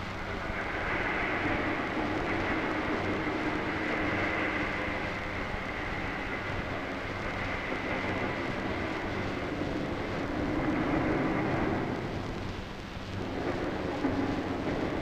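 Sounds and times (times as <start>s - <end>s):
rumbling noise drone: 0.0s - 15.0s.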